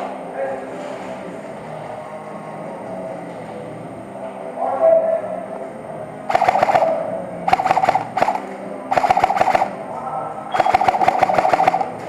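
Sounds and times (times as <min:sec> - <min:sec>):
airsoft rifle firing bursts: 0:06.3 - 0:09.8, 0:10.6 - 0:12.0.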